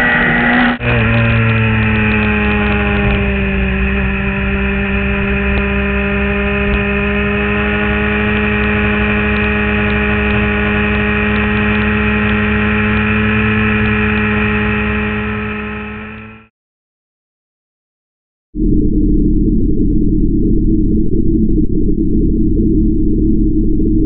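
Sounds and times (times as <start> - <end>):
motorcycle engine at high revs: 0.0 - 16.5.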